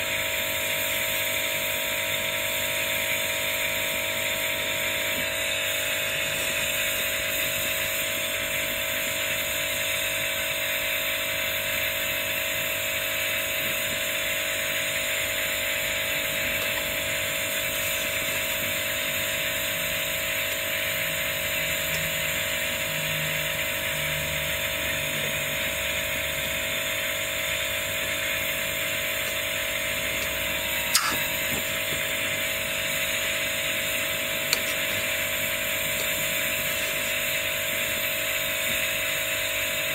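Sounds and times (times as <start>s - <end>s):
gas torch flame hissing: 4.6s - 11.0s, 13.1s - 23.8s, 27.2s - 39.9s
short sharp clicks: 30.9s - 31.3s.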